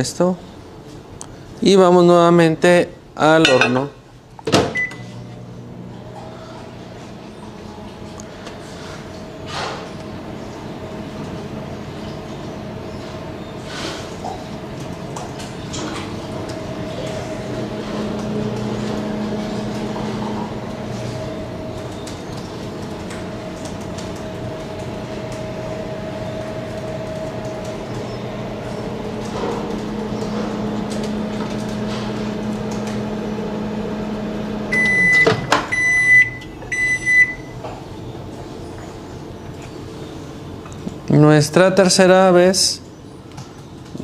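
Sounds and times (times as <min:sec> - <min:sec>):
microwave oven humming: 0:00.0 - 0:44.0
microwave beeps: 0:04.6 - 0:05.5, 0:29.9 - 0:37.7.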